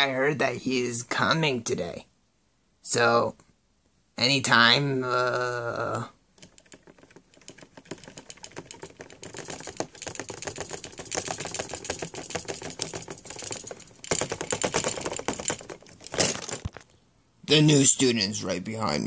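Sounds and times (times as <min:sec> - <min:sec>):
plastic toy clicking and rattling: 0:06.4 - 0:16.9.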